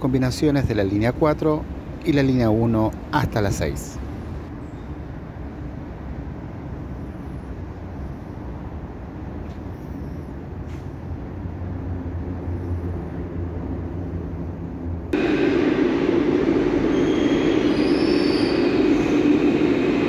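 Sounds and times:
low hum and rumble: 11.1s - 17.4s.

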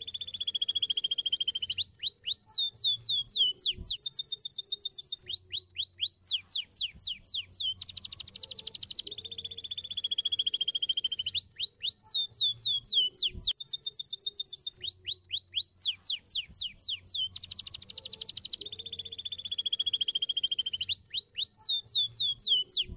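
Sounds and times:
canary singing: 0.0s - 22.9s.

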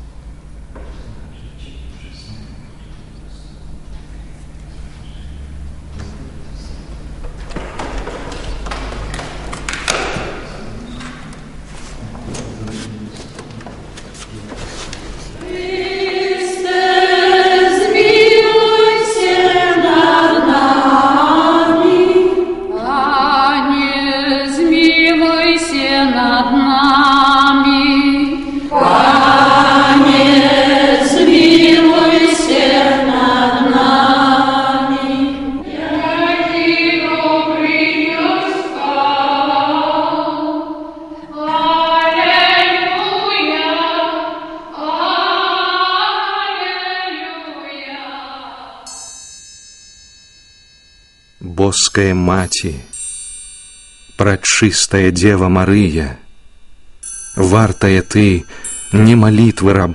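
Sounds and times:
women singing a hymn: 15.4s - 49.0s.

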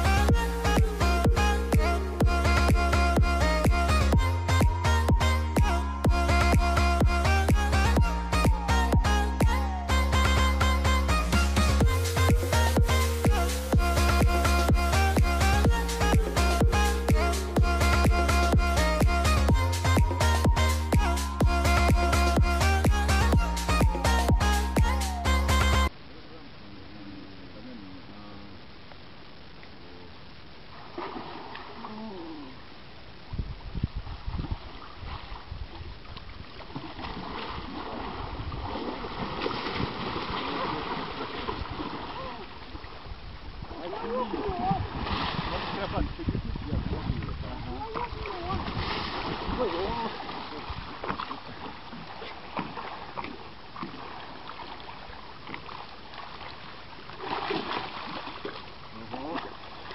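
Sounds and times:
fish thrashing and splashing: 36.6s - 42.5s, 47.9s - 58.7s.

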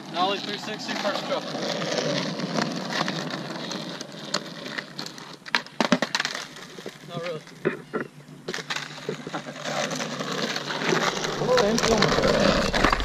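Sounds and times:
skateboard wheels rolling on asphalt: 0.0s - 13.0s
skateboard deck clacking on pavement: 0.5s - 7.6s.

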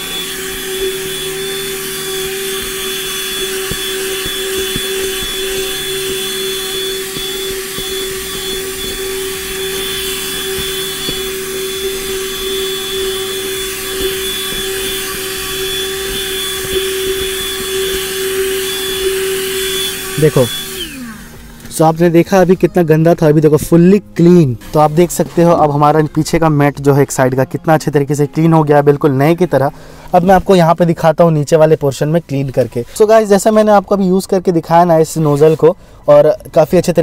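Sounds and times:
brush scrubbing carpet: 0.0s - 21.6s
handheld vacuum whining hum: 0.0s - 26.5s.

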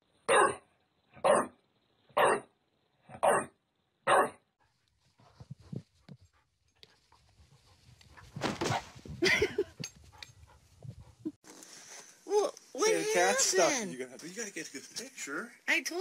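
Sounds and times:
dog barking: 0.3s - 0.6s, 1.2s - 1.6s, 2.2s - 2.5s, 3.1s - 3.5s, 4.1s - 4.4s
rustling: 4.6s - 12.9s.

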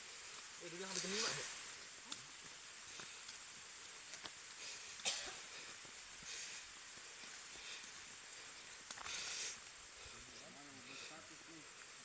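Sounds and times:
footsteps on dry leaves: 0.0s - 9.4s
steady high hiss: 0.0s - 12.0s.

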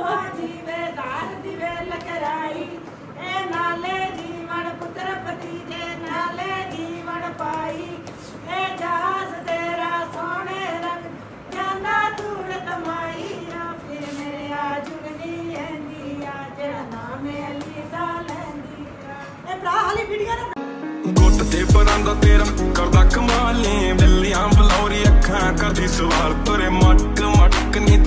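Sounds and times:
two women singing: 0.0s - 20.6s.

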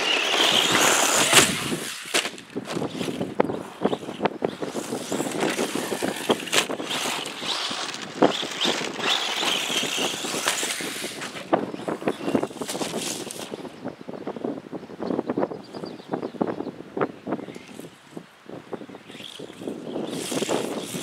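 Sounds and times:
toy truck knocking over rough ground: 0.0s - 3.3s, 4.0s - 11.5s
electric motor whining: 0.0s - 13.6s, 19.0s - 21.0s.

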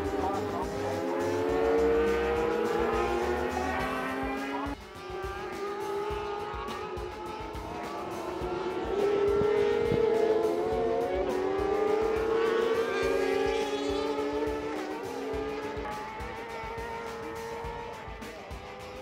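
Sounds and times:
sport bike engines revving: 0.0s - 19.0s.

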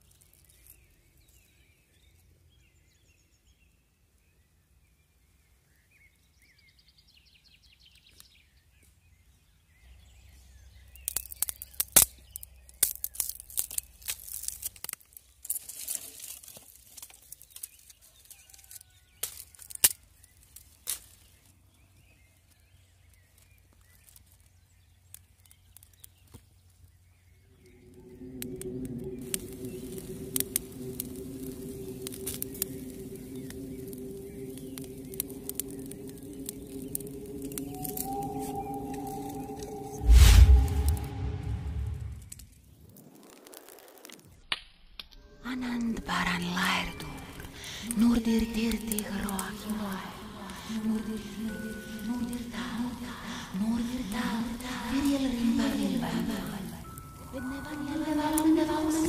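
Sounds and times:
dry twigs snapping: 11.0s - 21.5s, 23.0s - 26.8s, 27.6s - 41.0s, 46.0s - 59.0s
birds chirping: 21.7s - 42.2s, 45.5s - 59.0s.

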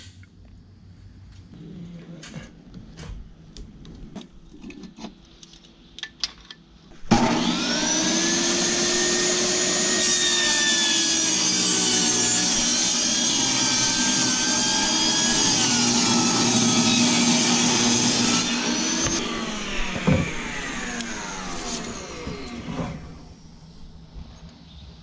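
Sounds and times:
table saw motor whining: 7.0s - 23.4s.

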